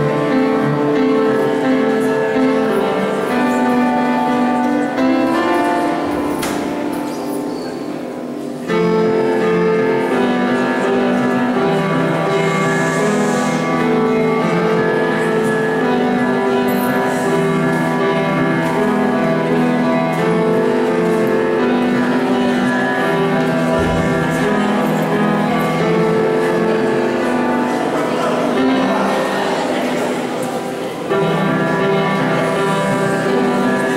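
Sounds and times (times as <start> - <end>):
upright piano playing chords: 0.0 - 33.9.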